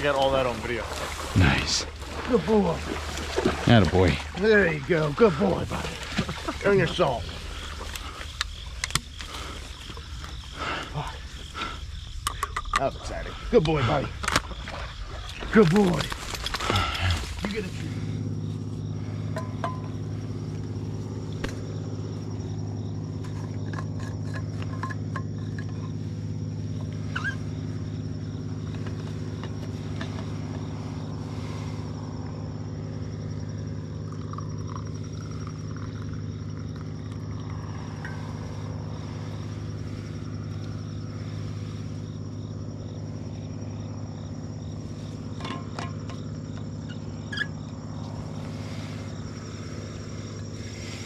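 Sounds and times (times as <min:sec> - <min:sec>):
low mechanical hum: 0:14.1 - 0:51.0
coffee pouring into cup: 0:34.1 - 0:37.6.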